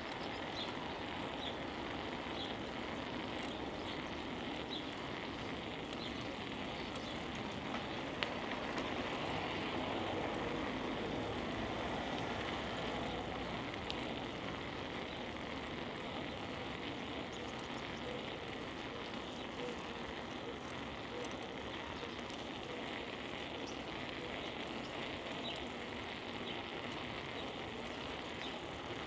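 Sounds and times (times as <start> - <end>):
bicycle tyres rolling on pavement: 0.0 - 29.0
faint sharp clicks: 26.9 - 28.6.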